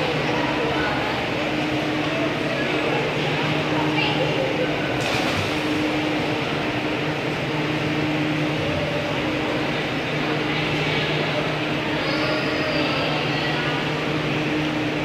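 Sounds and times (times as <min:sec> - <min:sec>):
ventilation rushing noise: 0:00.0 - 0:15.0.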